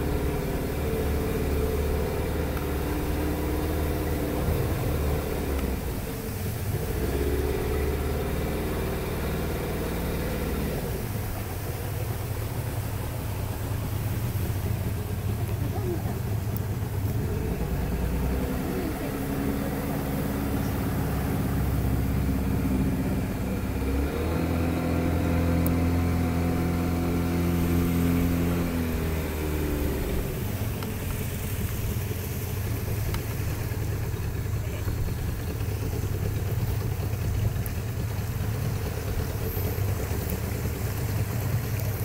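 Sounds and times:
outboard motor running: 0.0 - 42.0.

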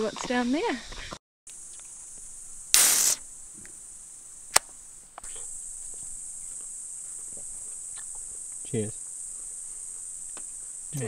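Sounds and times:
insects droning: 0.0 - 11.0
short rush of noise: 2.7 - 3.2
sharp click: 2.8 - 3.2.

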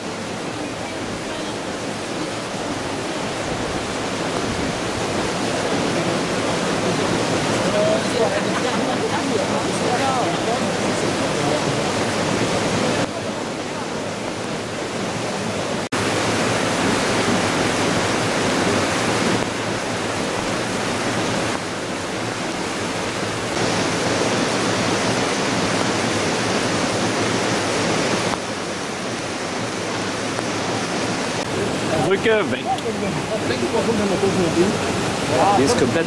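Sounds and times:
floodwater rushing: 0.0 - 36.0.

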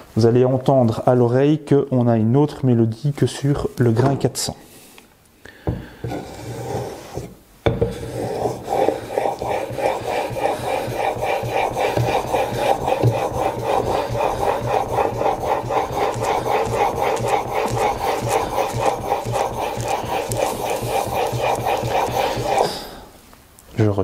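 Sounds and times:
chisel scraping on whetstone: 6.0 - 23.1.

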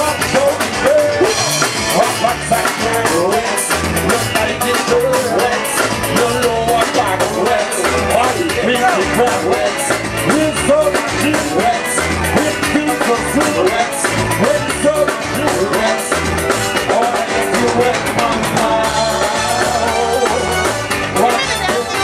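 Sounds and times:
drum kit beat: 0.0 - 22.0
held instrumental notes: 0.0 - 22.0
person singing: 0.0 - 22.0.

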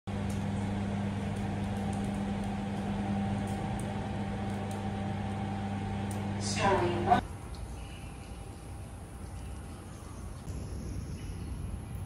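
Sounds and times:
lift mechanical hum: 0.1 - 7.2.

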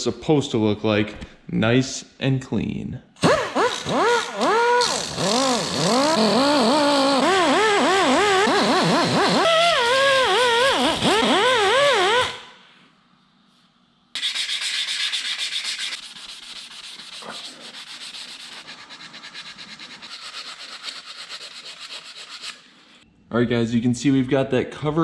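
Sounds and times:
sandpaper rubbing on metal: 14.2 - 23.0.

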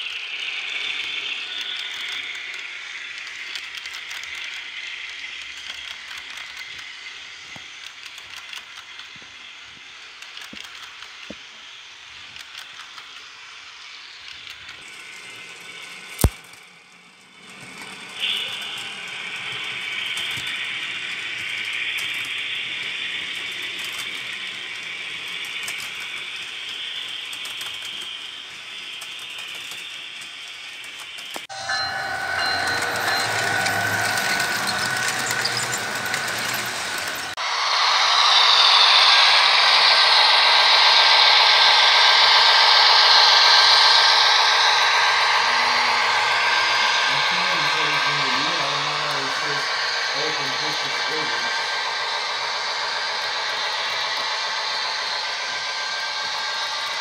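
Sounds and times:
model train motor whirring: 0.0 - 57.0
wheels clicking on track: 0.0 - 57.0.

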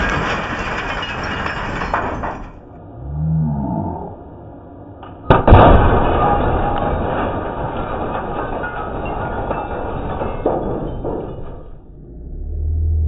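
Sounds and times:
breaking glass crash: 0.0 - 2.7, 5.3 - 12.0
debris settling: 0.0 - 2.8, 5.2 - 12.1.

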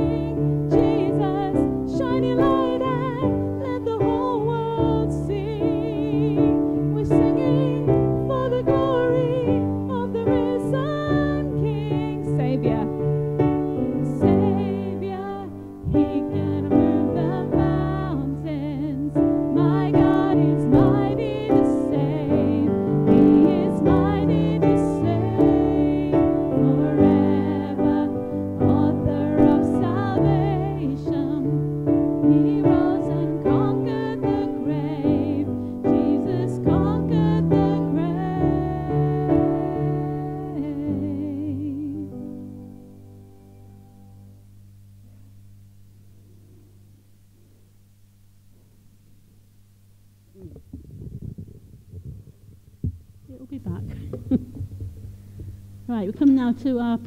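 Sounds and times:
voices singing a hymn: 0.0 - 12.9, 14.0 - 42.0
piano accompaniment: 0.0 - 44.4.

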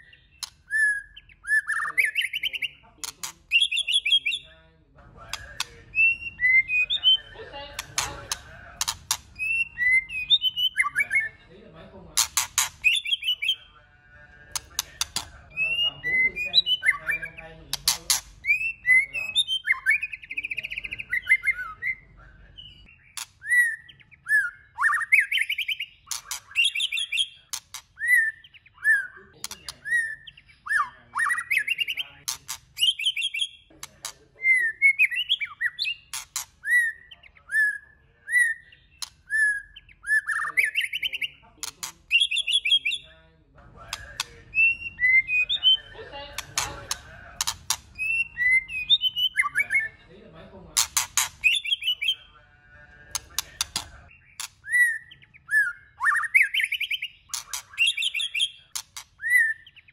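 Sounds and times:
bird whistling song: 0.0 - 2.9, 3.5 - 4.5, 5.3 - 7.4, 8.0 - 11.4, 12.3 - 13.7, 14.5 - 33.8, 34.4 - 43.1, 43.9 - 46.0, 46.6 - 50.0, 50.8 - 52.3, 53.1 - 59.9
bird sharp clicking notes: 7.7 - 9.5, 12.2 - 13.2, 14.5 - 15.4, 43.9 - 44.4, 46.3 - 48.2, 53.1 - 54.8.

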